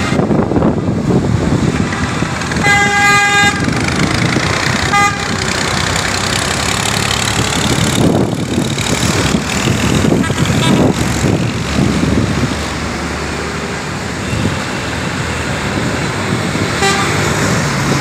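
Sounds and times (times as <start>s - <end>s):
traffic on wet road: 0.0s - 18.0s
vehicle horn honking: 2.6s - 3.7s, 4.9s - 5.4s, 10.2s - 10.9s, 16.8s - 17.3s.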